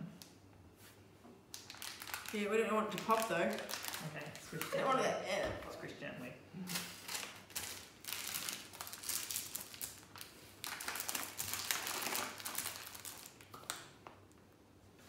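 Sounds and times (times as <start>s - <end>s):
plastic bag crinkling: 1.5s - 5.0s, 6.7s - 14.1s.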